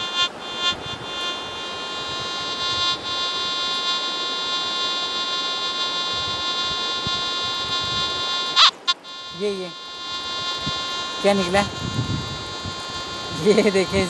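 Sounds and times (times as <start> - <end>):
metal detector buzzing tone: 0.0 - 14.0.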